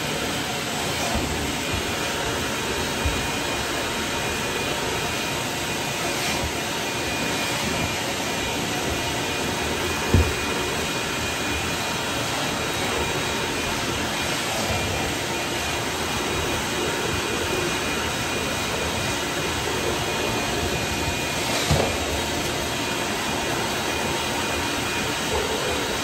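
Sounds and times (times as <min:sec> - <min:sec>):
shop vacuum running: 0:00.0 - 0:26.0
thump: 0:10.1 - 0:10.4.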